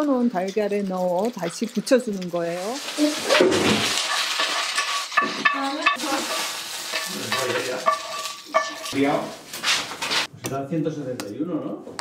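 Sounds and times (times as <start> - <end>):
spatula scraping and squeaking: 0.4 - 10.3
spinach sizzling in oil: 0.5 - 10.3.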